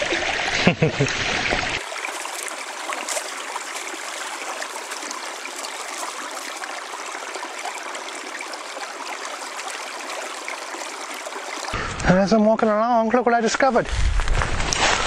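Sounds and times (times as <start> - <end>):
stream rushing over stones: 0.0 - 11.8.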